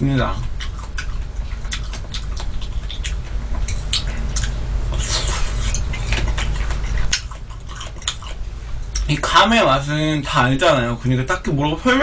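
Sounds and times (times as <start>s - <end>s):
steady low hum: 0.0s - 12.0s
chewing with crunches: 0.2s - 9.4s.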